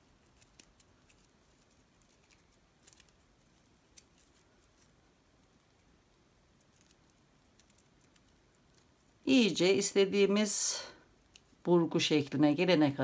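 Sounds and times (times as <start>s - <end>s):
paper cord twisting rustles: 0.0s - 9.3s, 11.2s - 11.7s.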